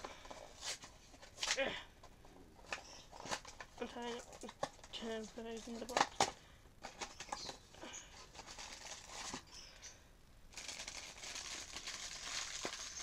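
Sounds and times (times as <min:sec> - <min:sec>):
plastic bag crinkling: 0:02.8 - 0:09.5, 0:10.5 - 0:13.0.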